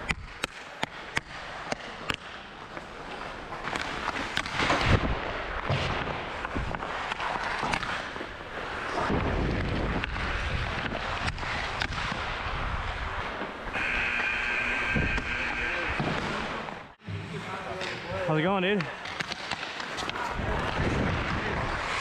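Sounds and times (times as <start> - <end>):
pucks struck by sticks: 0.0 - 2.9, 3.5 - 8.4, 9.0 - 12.4, 18.8 - 22.0
skate blades scraping ice: 6.3 - 16.8, 18.9 - 22.0.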